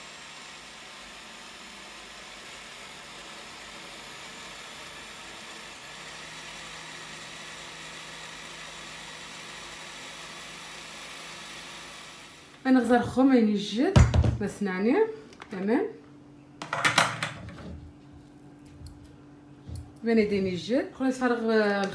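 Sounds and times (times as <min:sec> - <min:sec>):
blender running: 0:00.0 - 0:13.2.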